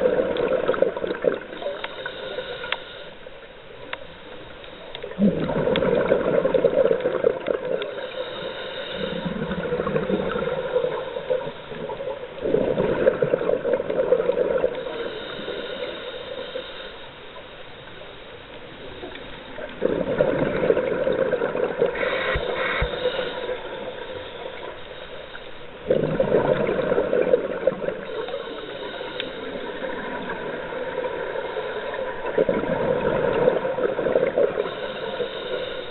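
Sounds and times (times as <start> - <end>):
exhaled air bubbling underwater: 0.0 - 35.9
faint regulator hiss: 0.0 - 35.9.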